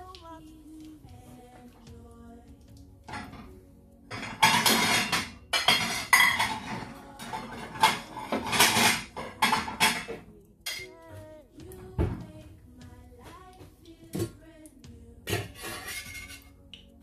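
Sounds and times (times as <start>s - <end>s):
dishes and utensils clattering: 3.1s - 11.0s, 15.2s - 16.6s.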